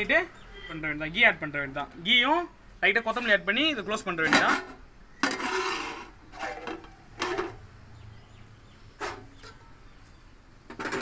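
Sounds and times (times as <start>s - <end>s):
metal lid scraping pot rim: 4.3s - 7.6s, 10.7s - 11.0s.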